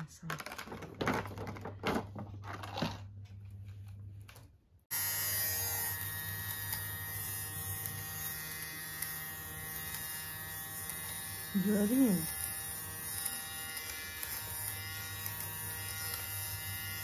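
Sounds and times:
electric lint remover buzzing: 4.9s - 17.0s.

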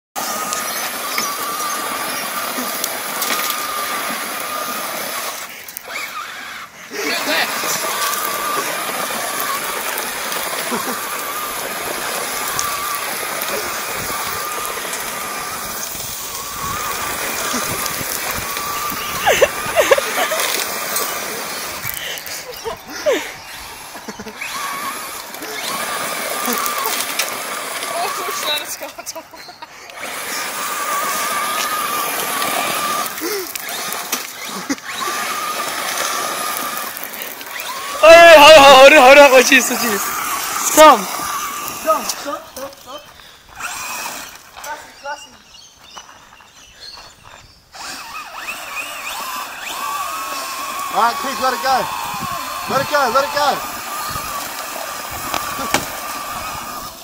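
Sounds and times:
small motor whining: 0.2s - 57.0s
gravel being flung: 6.9s - 29.0s, 30.1s - 44.6s.

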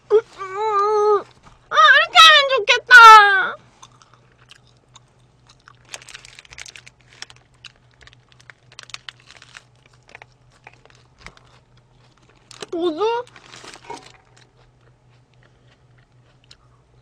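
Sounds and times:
chewing: 3.8s - 12.7s, 13.4s - 17.0s
paper wrapper crinkling: 5.6s - 14.5s.

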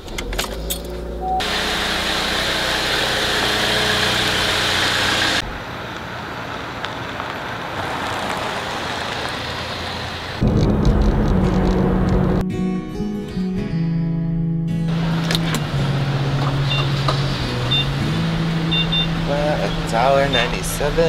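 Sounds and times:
car engine and rushing noise: 0.0s - 12.4s, 14.9s - 21.0s.

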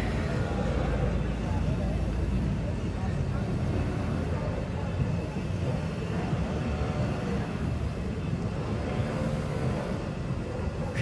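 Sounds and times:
low outdoor background rumble: 0.0s - 11.0s.

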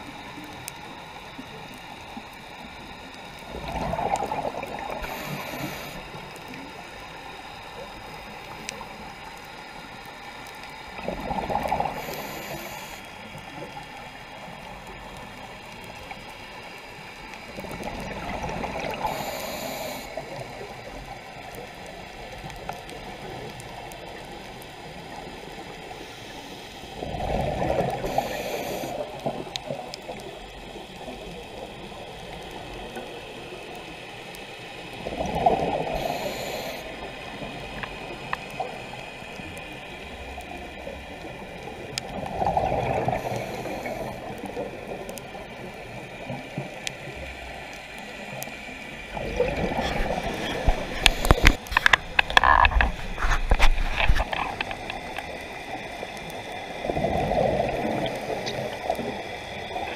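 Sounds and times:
steady regulator hiss: 0.0s - 59.9s
bubbling exhaled air underwater: 1.2s - 9.2s, 10.8s - 16.3s, 17.0s - 25.6s, 26.9s - 33.8s, 34.8s - 59.9s.

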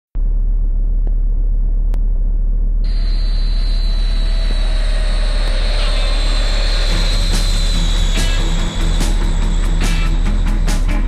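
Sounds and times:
jet engine rumble: 0.2s - 11.0s
jet engine whine: 2.9s - 11.0s.

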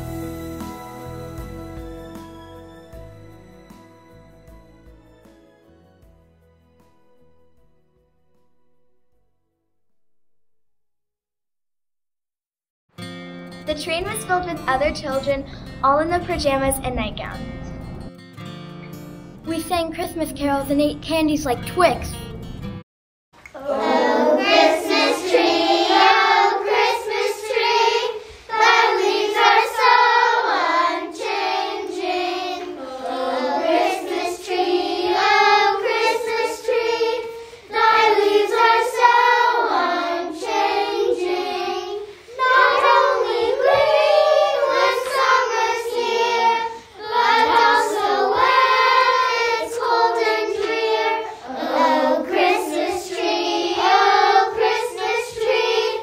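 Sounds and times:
children singing a carol: 23.5s - 56.0s.

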